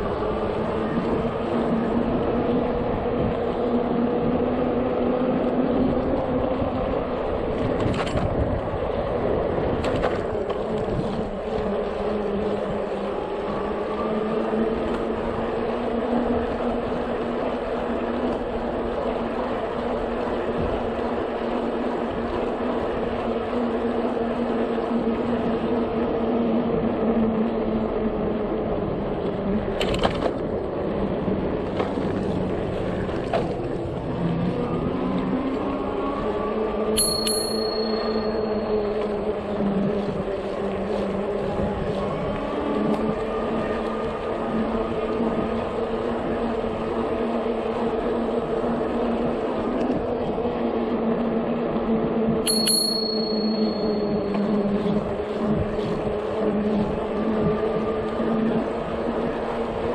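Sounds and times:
electric bike motor hum: 0:00.0 - 0:59.9
wind and tyre noise: 0:00.0 - 0:59.9.

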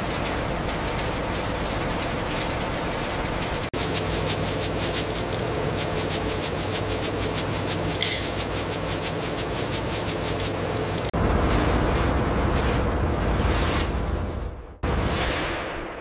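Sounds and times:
fast even machine clatter: 0:00.0 - 0:11.2
industrial machinery humming: 0:00.0 - 0:13.4
deep machine rumble: 0:00.0 - 0:14.3.

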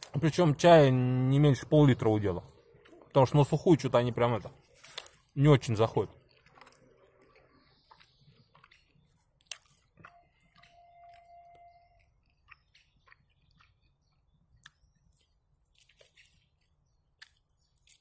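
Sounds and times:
faint chewing: 0:02.5 - 0:03.2, 0:04.5 - 0:18.0
faint steady tone: 0:10.0 - 0:12.4.

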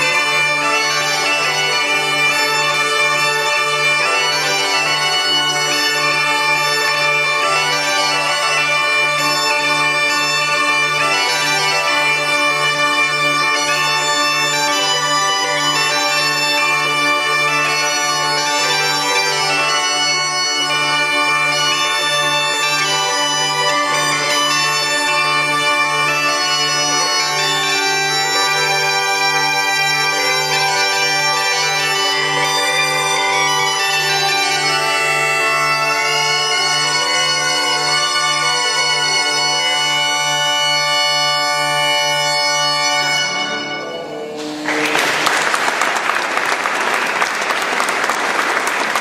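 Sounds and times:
bagpipes playing melody over drone: 0:00.0 - 0:45.6
audience applauding: 0:44.4 - 0:49.0.

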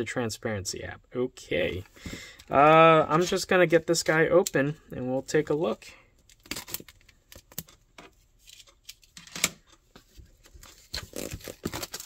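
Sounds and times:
shrink wrap crackling: 0:10.9 - 0:12.0.

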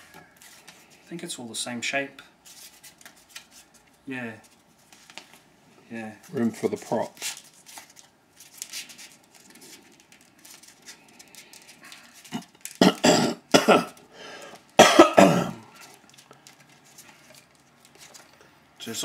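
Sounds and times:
person coughing: 0:12.8 - 0:14.0, 0:14.8 - 0:15.7.

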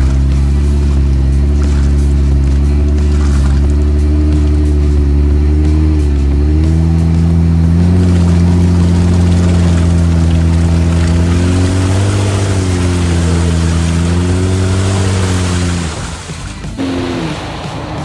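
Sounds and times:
engine running hard under load: 0:00.0 - 0:18.0
tires churning and splashing mud: 0:00.0 - 0:18.0.

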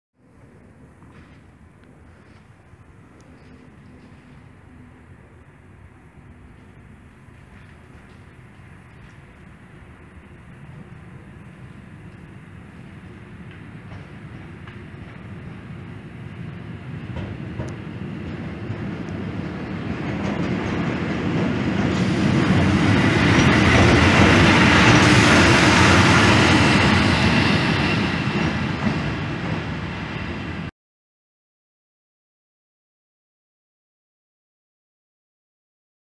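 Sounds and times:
electric locomotive passing: 0:00.2 - 0:30.7
wheels clattering over rail joints: 0:10.7 - 0:22.7.

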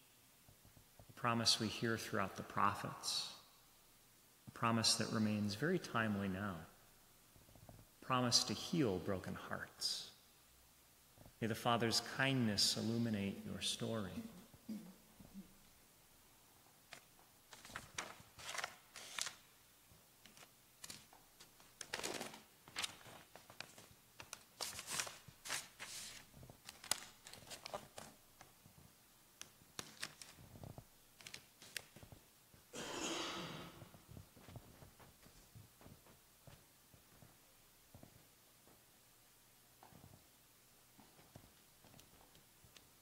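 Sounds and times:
soft rustles: 0:19.9 - 0:32.6, 0:33.8 - 0:39.0, 0:39.8 - 0:43.0.

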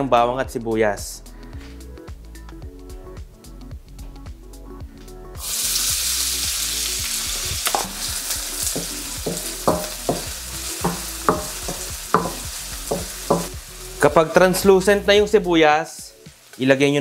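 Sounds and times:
onion sizzling in hot oil: 0:05.4 - 0:14.8, 0:16.0 - 0:17.0
wooden spoon knocking against wok: 0:08.7 - 0:13.6.

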